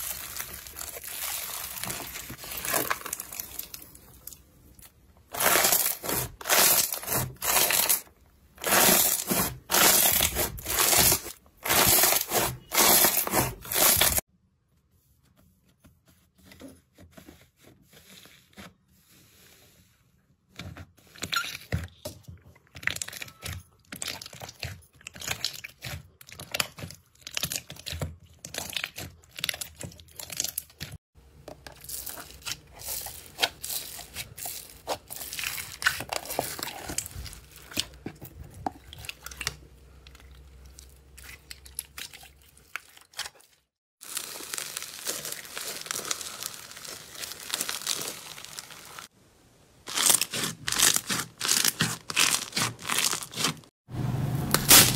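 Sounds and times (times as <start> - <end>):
foam-bead slime crunching: 0.0 - 14.3, 31.7 - 38.0, 38.8 - 49.2, 49.8 - 53.8.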